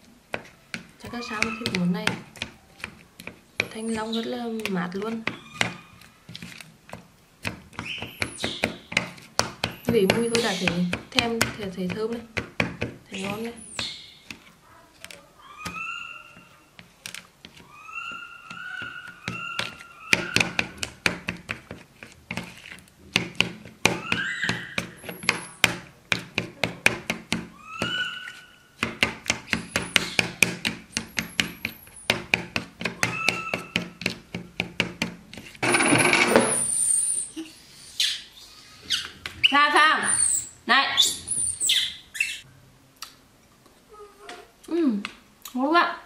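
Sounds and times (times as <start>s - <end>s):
baby monkey crying: 1.1s - 1.8s, 5.2s - 6.0s, 15.4s - 16.7s, 17.6s - 20.8s, 23.9s - 25.5s, 27.5s - 28.7s, 33.0s - 33.9s
spoon scraping a bowl: 1.2s - 6.7s, 21.3s - 22.9s.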